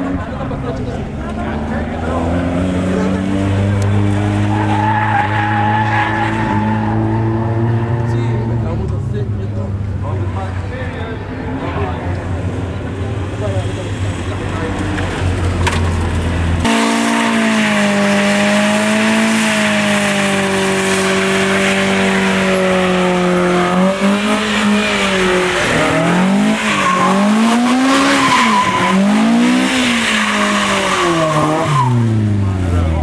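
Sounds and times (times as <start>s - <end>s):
car engine revving: 0.0s - 33.0s
tyres squealing: 4.1s - 8.6s, 20.7s - 32.1s.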